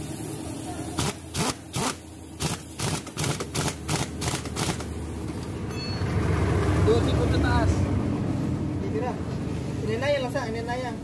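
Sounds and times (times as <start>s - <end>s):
pneumatic impact wrench bursts: 0.9s - 5.5s.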